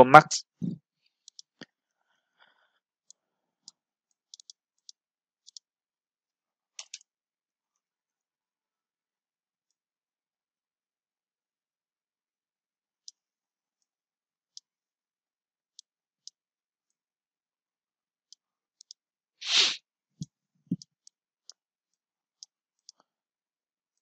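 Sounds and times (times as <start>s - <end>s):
computer mouse clicking: 1.2s - 1.5s, 4.3s - 5.7s, 6.8s - 7.1s
short puff of noise: 19.4s - 19.8s.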